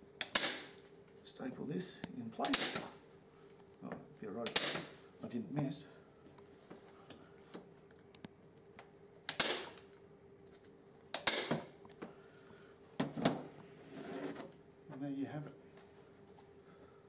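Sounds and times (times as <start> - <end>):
staple gun snapping: 0.2 - 0.7, 2.4 - 2.9, 4.4 - 4.9, 9.2 - 9.9, 11.1 - 11.6.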